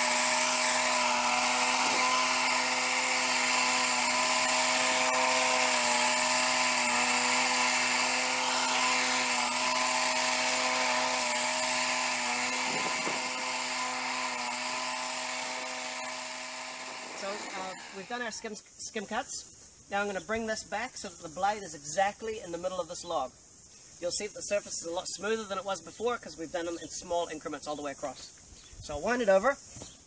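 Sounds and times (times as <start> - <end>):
sawmill motor running: 0.0 - 18.2
circular saw blade cutting log: 0.0 - 18.3.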